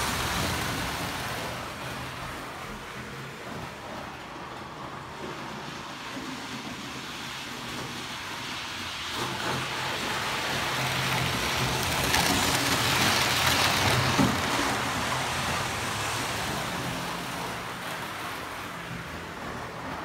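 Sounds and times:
model train wheels rattling on track: 0:03.5 - 0:15.8.

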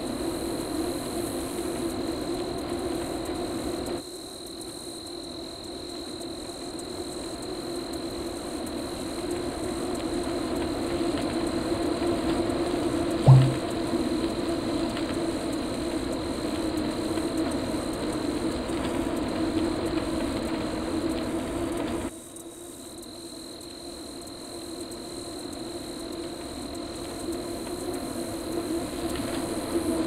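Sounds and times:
loud thump: 0:13.3 - 0:13.7.

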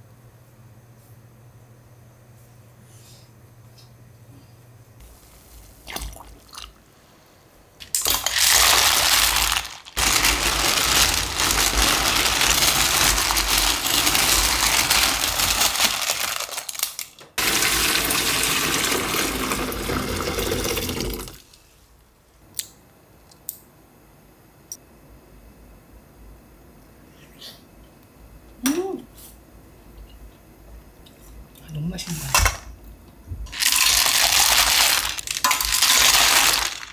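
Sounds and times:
shells clattering in steel pot: 0:33.8 - 0:36.9.

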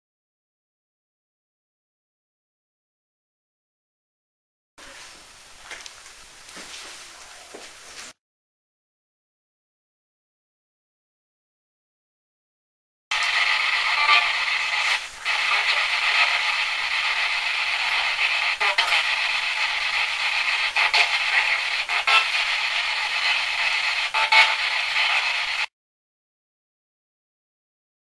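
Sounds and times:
radio static hiss: 0:04.8 - 0:08.2, 0:13.1 - 0:25.7.

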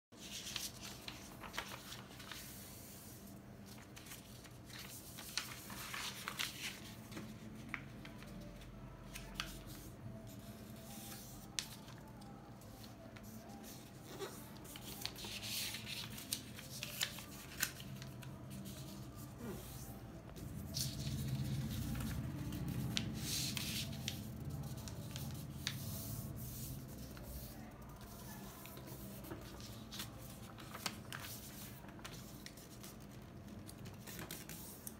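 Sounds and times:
paper rustling and sliding: 0:00.2 - 0:08.4, 0:13.2 - 0:27.6.

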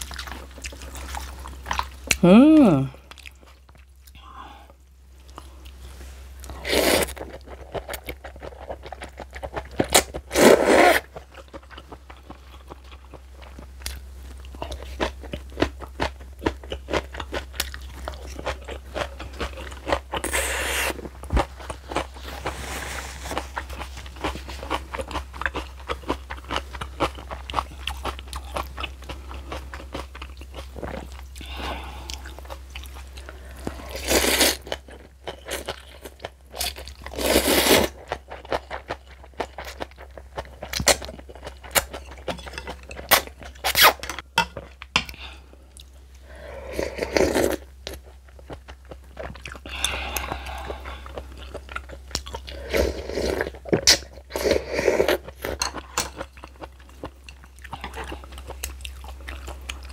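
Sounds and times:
crunching and chewing: 0:00.0 - 0:02.2, 0:05.2 - 0:46.0, 0:46.9 - 0:59.9
slurping noodles: 0:10.3 - 0:11.1, 0:20.2 - 0:21.0.

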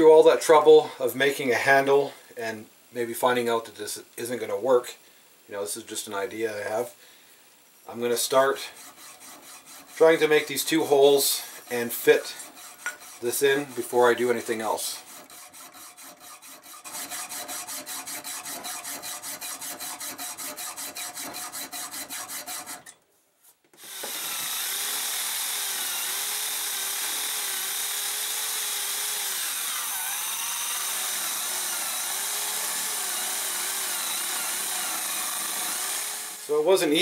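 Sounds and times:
rotary tool disc grinding metal: 0:08.2 - 0:23.0, 0:24.0 - 0:37.0
hacksaw cutting steel pipe: 0:08.4 - 0:23.0, 0:23.8 - 0:36.5.

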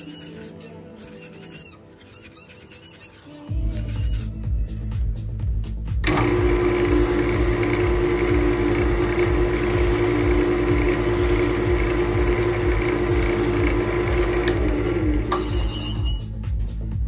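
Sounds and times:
background music with steady beat: 0:03.0 - 0:17.0
wood lathe turning: 0:06.0 - 0:16.2
tool hissing cutting wood: 0:06.1 - 0:16.2.

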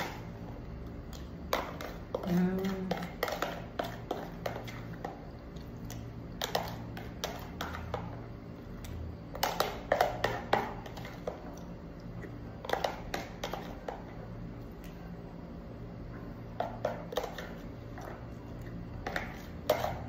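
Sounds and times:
plastic spoon scraping container: 0:19.0 - 0:20.0.

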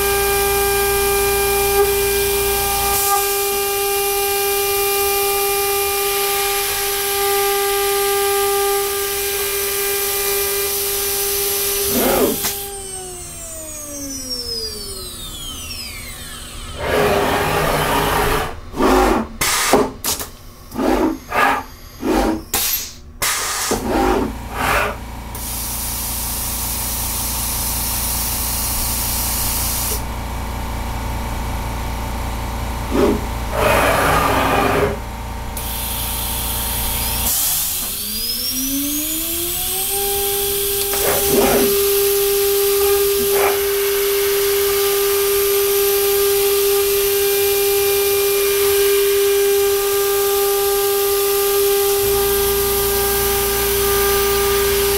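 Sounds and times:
router spindle whine: 0:00.0 - 0:18.9, 0:20.6 - 0:22.6, 0:30.8 - 0:54.9
steady machine hum: 0:20.3 - 0:23.1, 0:30.1 - 0:37.2.

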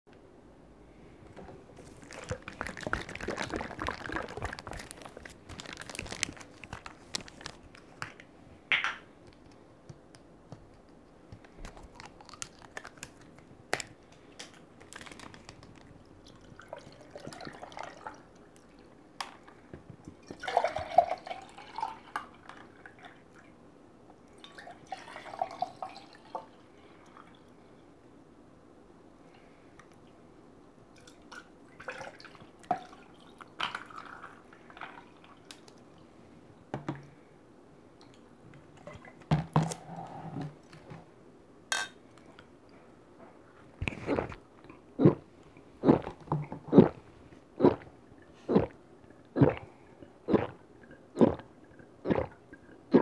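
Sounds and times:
drink pouring over ice: 0:01.8 - 0:07.5
plastic bottle clicks and rustling: 0:01.8 - 0:09.0.

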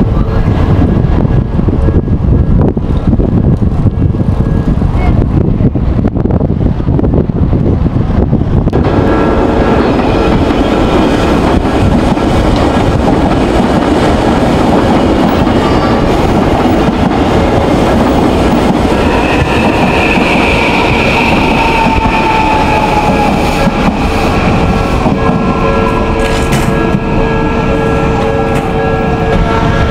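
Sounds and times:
high whine: 0:06.5 - 0:29.9
train wheels clattering over rails: 0:08.8 - 0:27.2.

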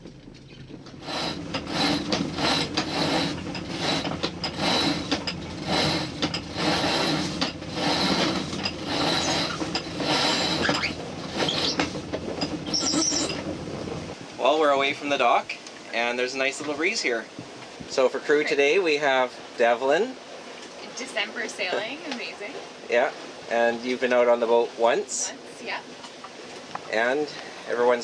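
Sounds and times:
winch ratcheting: 0:00.1 - 0:14.2.

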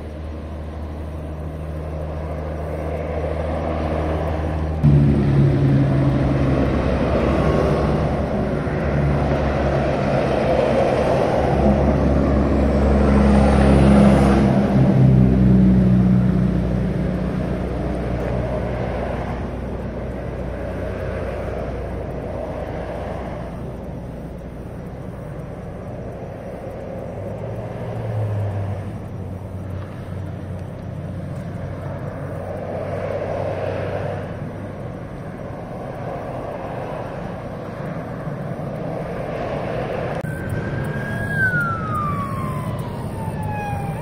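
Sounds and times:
highway traffic passing: 0:00.0 - 0:44.0
emergency vehicle siren wail: 0:04.8 - 0:17.0, 0:40.1 - 0:44.0.

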